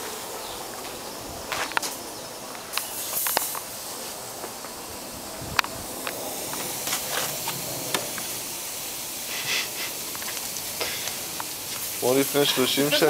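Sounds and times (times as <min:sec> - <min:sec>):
patties sizzling on grill: 0:00.0 - 0:13.0.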